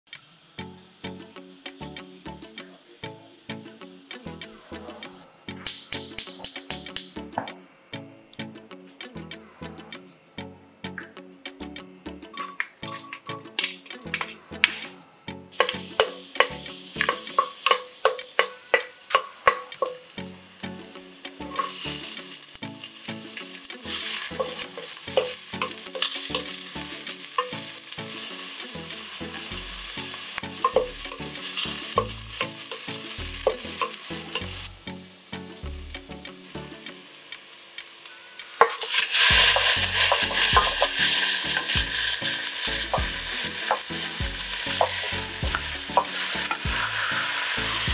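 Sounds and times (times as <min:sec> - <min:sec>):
food sizzling in hot oil: 0:05.6 - 0:07.2, 0:15.5 - 0:47.9
spatula tapping pot: 0:15.6 - 0:20.0, 0:23.6 - 0:26.6, 0:30.4 - 0:34.5, 0:38.5 - 0:46.8.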